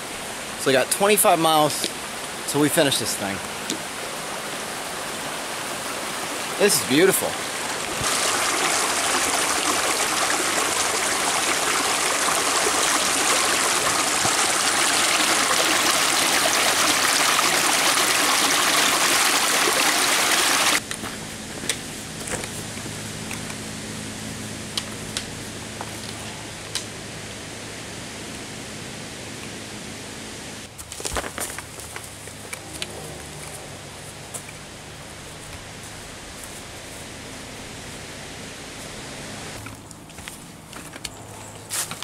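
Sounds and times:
forest stream rushing: 0:00.0 - 0:20.8.

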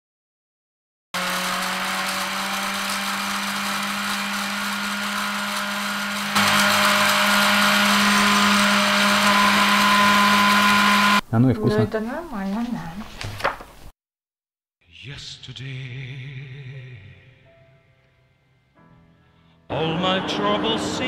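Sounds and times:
blender motor running: 0:01.2 - 0:11.2.

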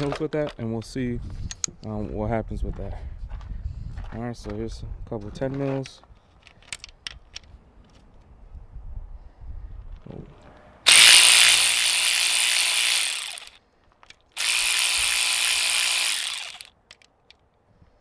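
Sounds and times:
electric ratchet spinning bolts: 0:10.9 - 0:13.6, 0:14.3 - 0:17.0.

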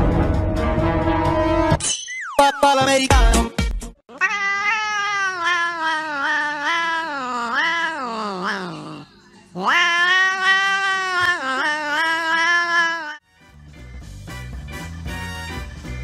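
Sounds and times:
cat yowling: 0:04.1 - 0:13.2.

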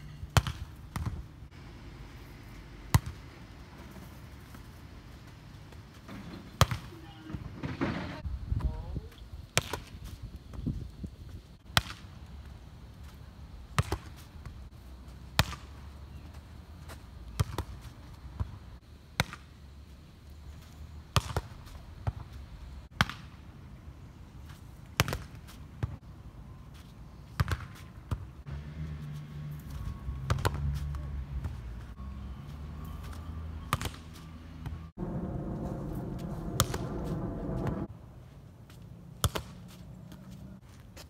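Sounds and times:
low steady rumble: 0:34.9 - 0:38.0.

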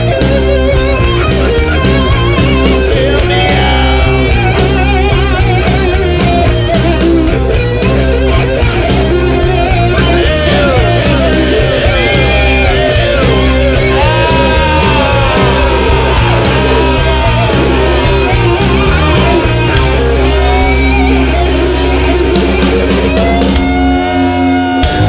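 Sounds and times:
rock music with guitar: 0:00.0 - 0:25.0
drum beat: 0:10.1 - 0:23.5.

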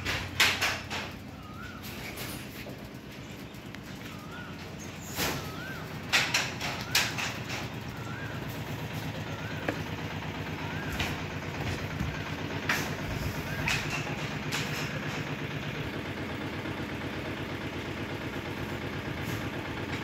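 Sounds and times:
sharp knocks and clatters: 0:00.0 - 0:03.2, 0:06.1 - 0:07.9, 0:10.9 - 0:15.5
steady low hum: 0:00.0 - 0:20.0.

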